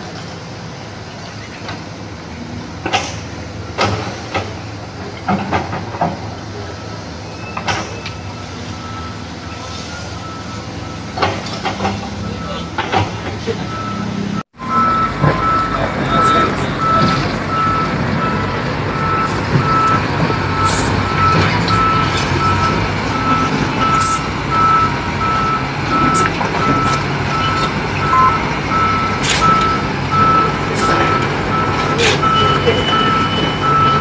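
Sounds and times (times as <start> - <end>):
diesel engines running: 0.0 - 34.0
backup alarm beeping: 12.2 - 34.0.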